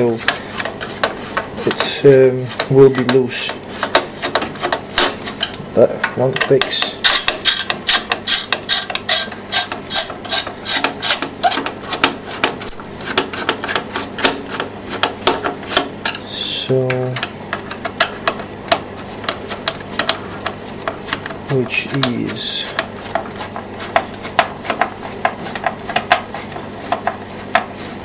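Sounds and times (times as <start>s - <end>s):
screws clicking and scraping: 7.0s - 16.2s.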